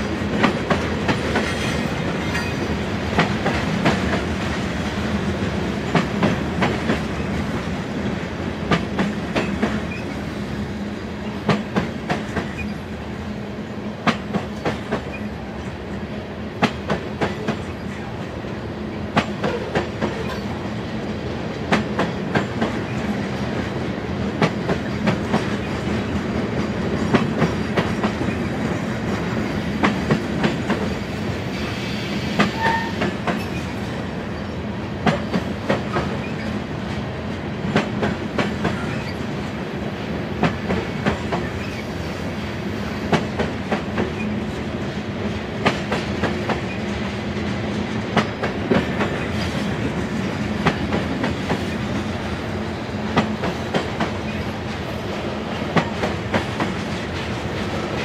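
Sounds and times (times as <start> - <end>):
freight train rumble: 0.0 - 58.0
train wheel clicks: 8.7 - 10.2, 11.4 - 12.8, 53.1 - 58.0.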